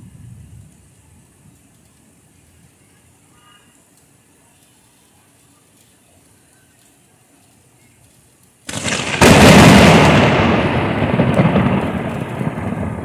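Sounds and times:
deep thunder rumble: 0.0 - 1.4, 8.7 - 13.0
thunderclap: 8.7 - 13.0.

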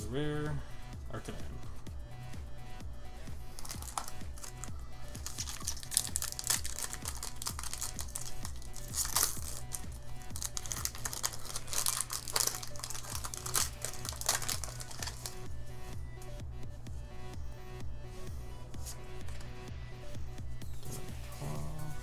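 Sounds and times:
music with low beat: 0.0 - 22.0
foil wrapper crinkling and tearing: 3.6 - 15.4.

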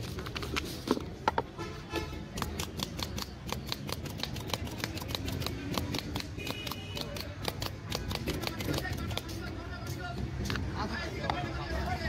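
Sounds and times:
low rumble of street noise: 0.0 - 12.0
rapid sharp clicking: 2.4 - 9.3.

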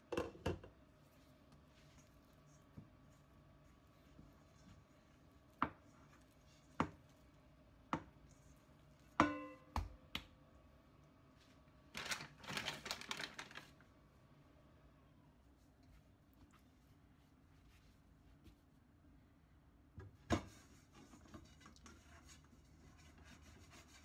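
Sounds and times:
metal bowl clanging: 9.2 - 9.7
sharp knocks on mixing bowl: 9.2 - 9.9.

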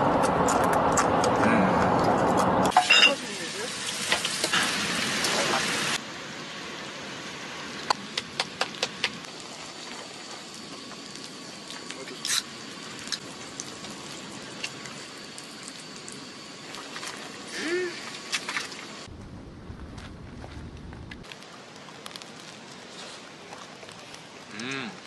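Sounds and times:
meat sizzling on a griddle: 2.7 - 6.0.

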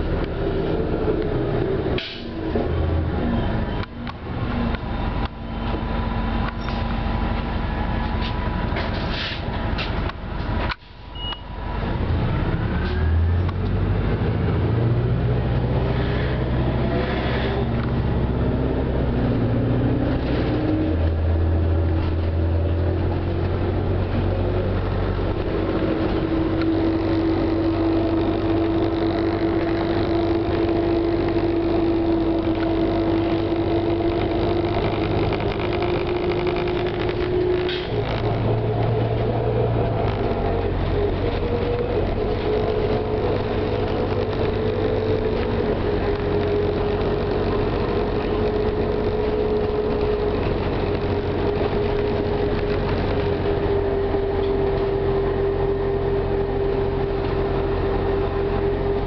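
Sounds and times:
bus engine accelerating: 0.0 - 59.0
rising whine: 12.2 - 59.0.

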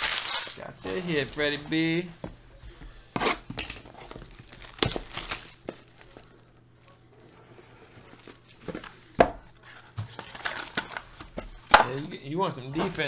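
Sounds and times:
cellophane tearing and crinkling: 0.0 - 1.3, 3.6 - 7.4.

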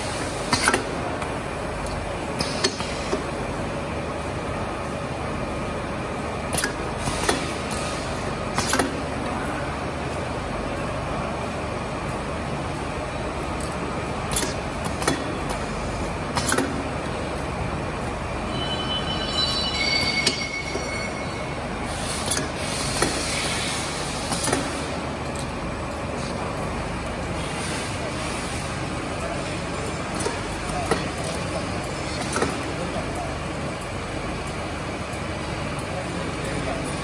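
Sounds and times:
brief high squeal: 18.5 - 21.7.

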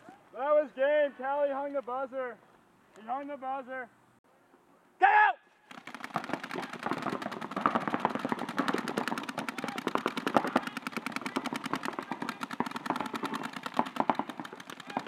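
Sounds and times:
paintball markers firing rapidly: 5.7 - 15.0.

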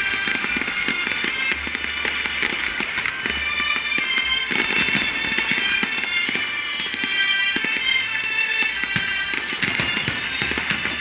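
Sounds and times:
fireworks bangs and crackles: 0.0 - 11.0
music playing: 0.0 - 11.0.

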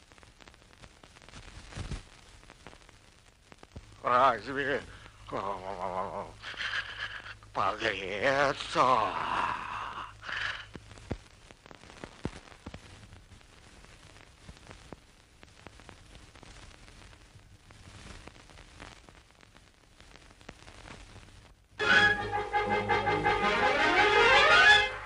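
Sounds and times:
clicks and crackles: 0.0 - 4.0, 10.2 - 21.6
faint hiss: 0.0 - 25.0.

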